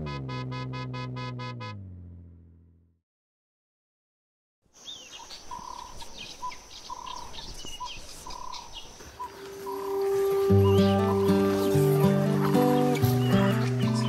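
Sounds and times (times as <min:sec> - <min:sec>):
bird chirps and sweeping calls: 0:04.8 - 0:14.0.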